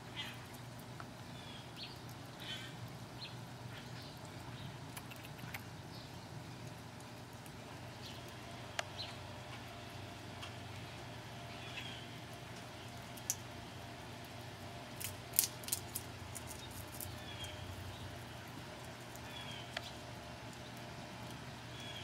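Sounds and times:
squirrel gnawing shell cracks: 0:04.8 - 0:05.7, 0:12.3 - 0:13.6, 0:14.2 - 0:21.4.

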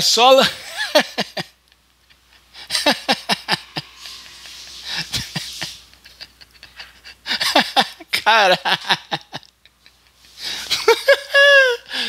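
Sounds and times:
man laughing breathily: 0:02.1 - 0:08.1, 0:09.1 - 0:12.0.

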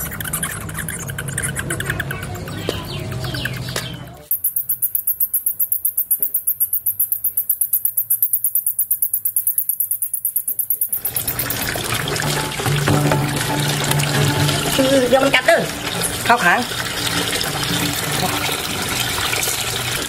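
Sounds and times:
bat squeaking rapidly: 0:00.0 - 0:11.9.

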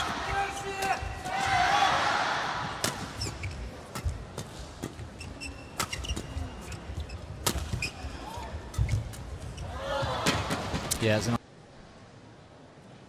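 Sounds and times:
shoes squeaking on floor: 0:03.1 - 0:04.1, 0:04.9 - 0:09.8.

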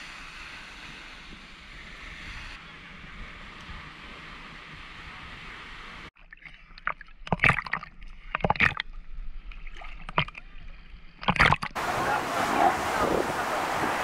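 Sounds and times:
wind and surf hiss: 0:00.0 - 0:06.2, 0:11.8 - 0:14.0
waves splashing against camera: 0:11.1 - 0:14.0.

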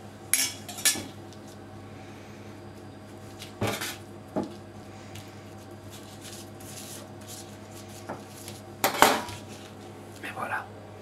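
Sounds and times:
steady low hum: 0:00.0 - 0:11.0
baking paper rustling: 0:03.2 - 0:09.9.

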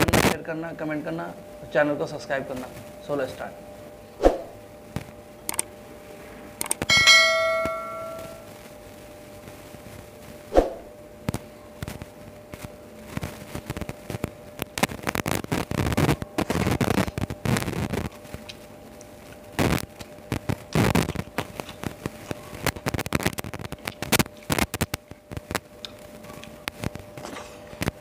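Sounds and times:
dish clinking: 0:06.9 - 0:08.5.

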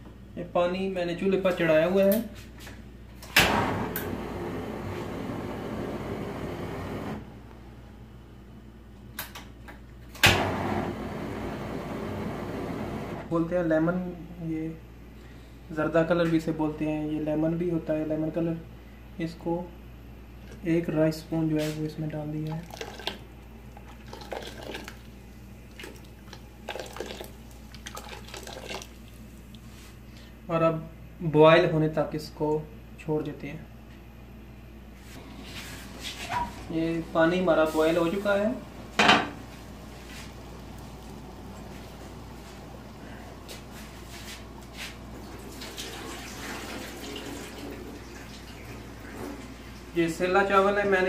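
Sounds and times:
steady low hum: 0:00.0 - 0:45.4
liquid splashing into water: 0:22.5 - 0:23.2, 0:23.8 - 0:29.3.

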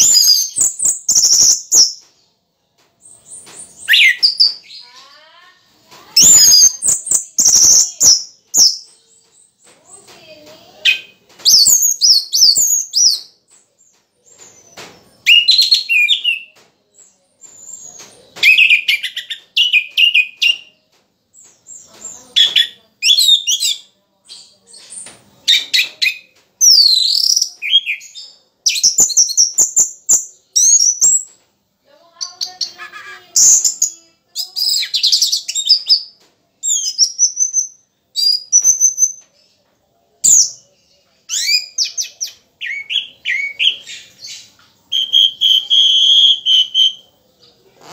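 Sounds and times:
thrush singing whistled phrases: 0:03.2 - 0:04.8, 0:06.2 - 0:08.8, 0:15.2 - 0:16.6, 0:33.4 - 0:39.2, 0:41.3 - 0:47.1.

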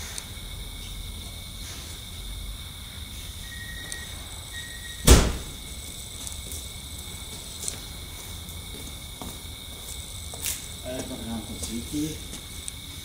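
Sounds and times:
faint high-pitched tone: 0:03.4 - 0:05.0
car door slamming: 0:05.0 - 0:05.6.

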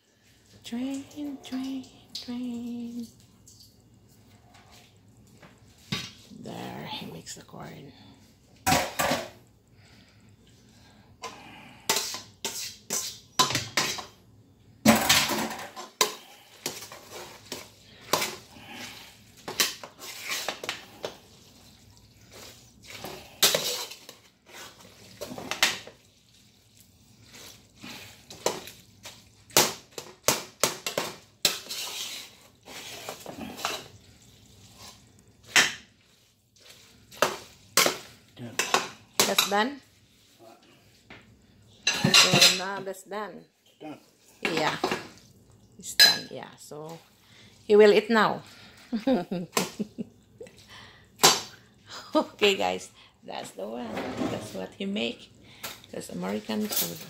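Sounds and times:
spoon knocking and scraping a pot: 0:11.2 - 0:14.2.

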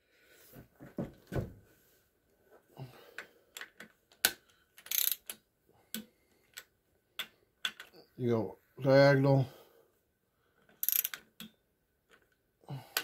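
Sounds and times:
torque wrench clicks: 0:04.2 - 0:06.0, 0:10.8 - 0:11.5
ratchet clicking: 0:04.8 - 0:05.4, 0:10.8 - 0:11.2.

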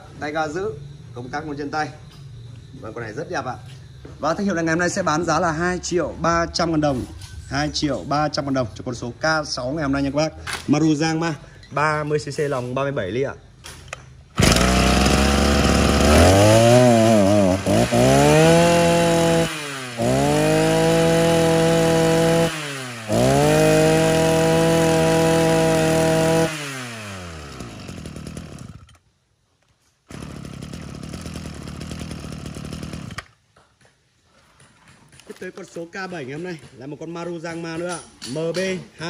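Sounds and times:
brush cutter engine revving: 0:14.3 - 0:29.0, 0:30.1 - 0:33.4.

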